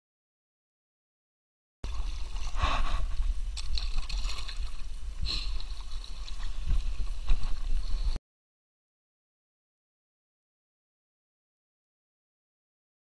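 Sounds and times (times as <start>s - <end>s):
paddle splashing in water: 1.8s - 8.2s.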